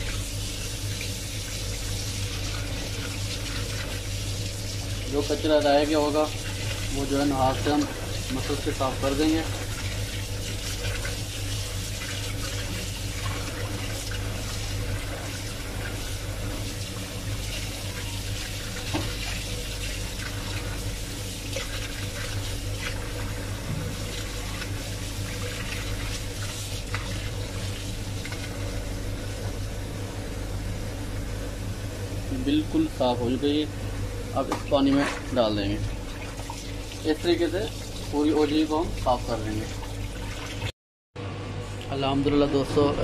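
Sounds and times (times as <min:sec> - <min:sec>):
tap water running into bowl: 0:00.0 - 0:28.6
hands rubbing and rinsing tripe: 0:00.0 - 0:29.8, 0:34.4 - 0:40.7
small knocks and splashes: 0:18.8 - 0:19.4, 0:34.5 - 0:35.4.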